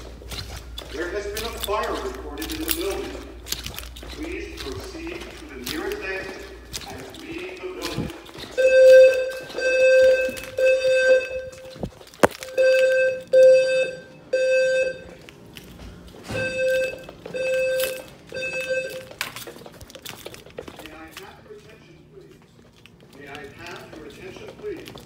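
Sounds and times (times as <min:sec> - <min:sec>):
fire alarm evacuation tone: 0:07.4 - 0:19.5.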